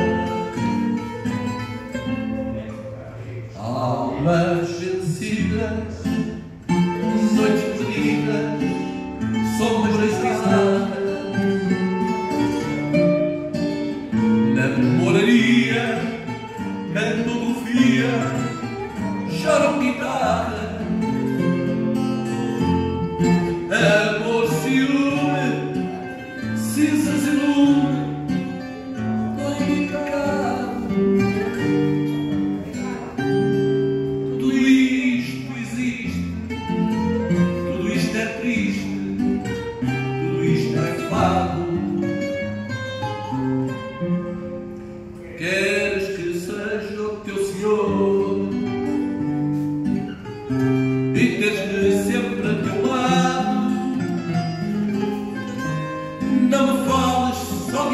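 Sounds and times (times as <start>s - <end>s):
plucked guitar: 0.0s - 57.9s
man singing into a microphone: 3.5s - 11.4s, 14.1s - 21.0s, 23.4s - 28.6s, 29.3s - 31.9s, 34.2s - 36.4s, 37.2s - 39.2s, 40.1s - 41.9s, 45.2s - 49.0s, 51.1s - 54.3s, 56.1s - 57.9s.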